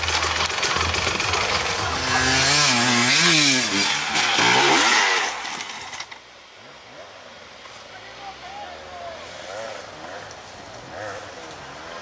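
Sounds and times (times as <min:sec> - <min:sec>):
dirt bike engine revving: 0:00.0 - 0:06.2.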